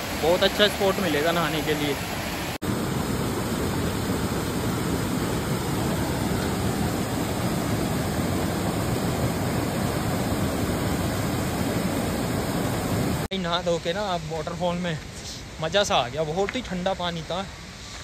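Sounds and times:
waterfall rushing: 0.0s - 13.3s.

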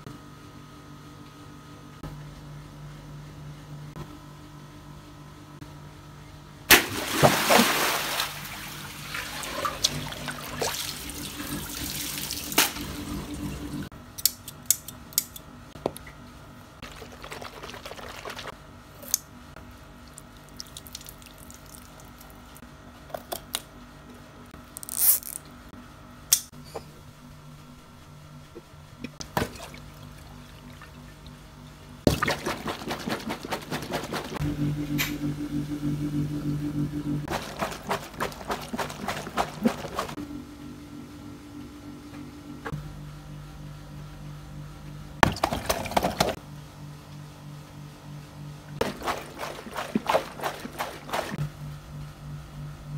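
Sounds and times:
water running from hose: 7.5s - 13.8s, 37.3s - 40.2s, 48.8s - 51.4s
water gushing and splashing: 37.3s - 40.2s, 48.8s - 51.4s.

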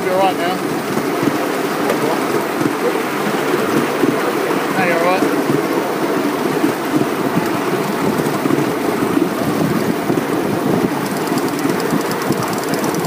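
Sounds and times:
steam locomotive rumbling: 0.0s - 13.0s
fast light ticking: 11.0s - 13.0s.

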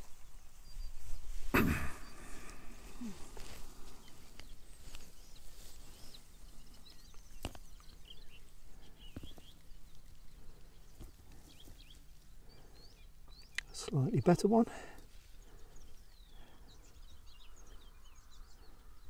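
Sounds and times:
footsteps through long grass: 0.0s - 12.5s
faint bird chirps: 0.0s - 19.0s.

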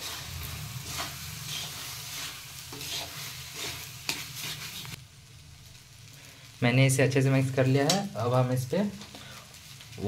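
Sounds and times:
metal spatula scraping pan: 0.0s - 5.0s
food sizzling: 0.0s - 10.0s.

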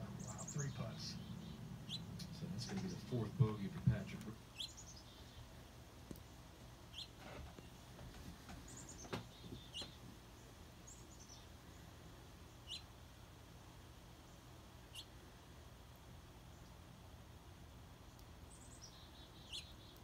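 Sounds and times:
songbird calls: 0.0s - 5.6s, 6.9s - 7.9s, 8.6s - 11.9s, 12.5s - 12.9s, 14.9s - 15.2s, 18.1s - 20.0s.

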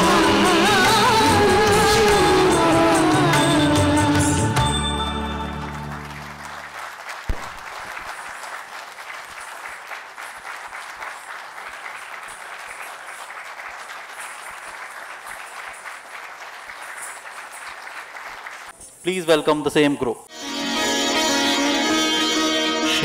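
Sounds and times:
dance music: 0.0s - 4.8s
audience applauding: 0.0s - 18.8s.

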